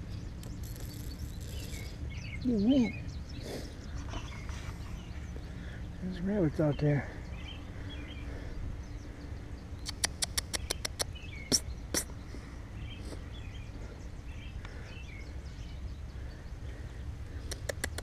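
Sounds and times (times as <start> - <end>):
steady low rumble: 0.0 - 17.6
birds chirping: 0.0 - 18.0
sharp clicks: 9.8 - 12.1, 17.4 - 18.0.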